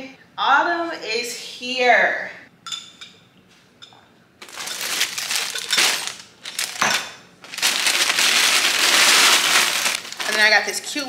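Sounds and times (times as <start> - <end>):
packaging crinkling and rustling: 4.4 - 11.0.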